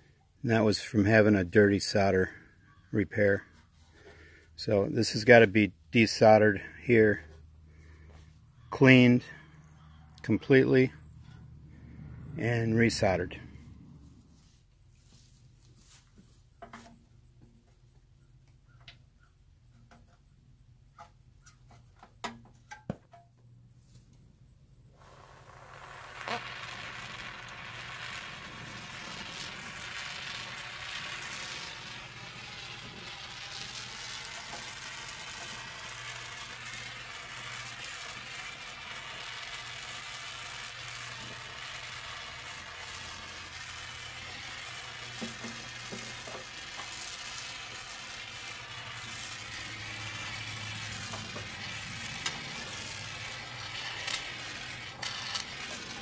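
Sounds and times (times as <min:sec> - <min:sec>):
gas torch hissing: 0:24.9 - 0:56.0.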